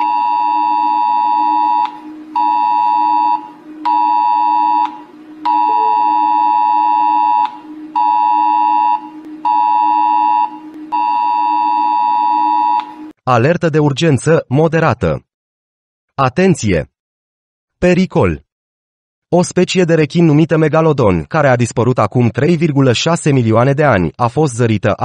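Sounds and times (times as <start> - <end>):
two-pitch emergency alert tone: 0.0 - 13.2.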